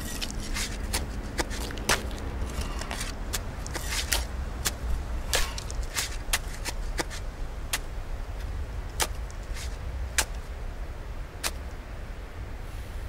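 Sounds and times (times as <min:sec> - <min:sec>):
spades digging into soil: 0:00.0 - 0:10.4
steady low rumble: 0:00.0 - 0:13.0.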